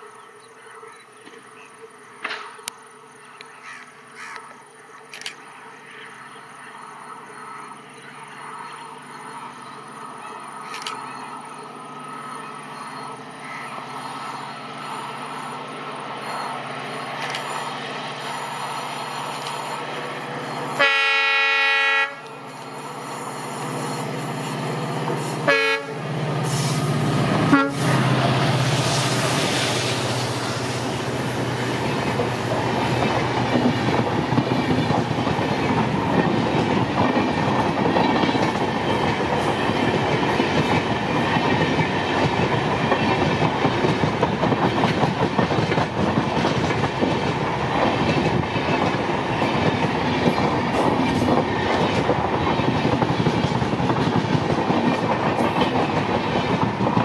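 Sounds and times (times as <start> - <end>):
diesel locomotive engine running: 5.1 - 57.0
train wheel clatter: 16.2 - 21.0, 26.4 - 57.0
locomotive horn blast: 20.7 - 22.3, 25.4 - 26.7, 27.4 - 28.1.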